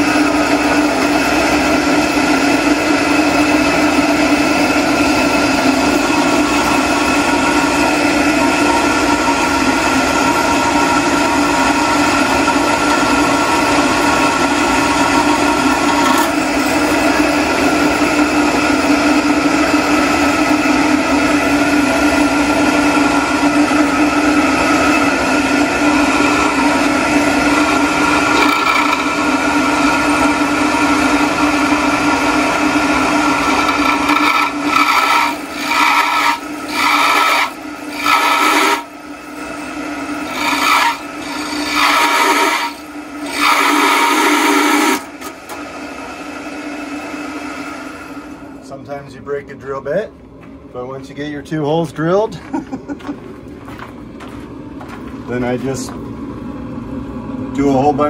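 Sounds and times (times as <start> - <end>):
drill press grinding into steel: 0.0 - 38.9, 40.0 - 45.6.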